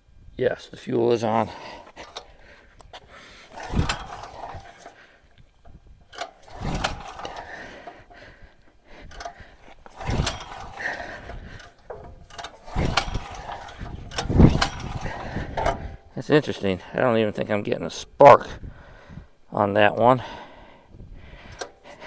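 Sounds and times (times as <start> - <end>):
generator engine spinning over: 1.7 - 16.2
recoil pull cord yanked: 1.8 - 16.1, 21.4 - 22.0.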